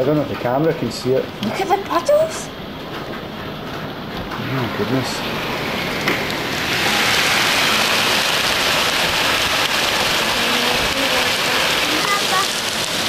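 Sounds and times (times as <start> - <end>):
hail and heavy rain clattering: 2.8 - 13.0.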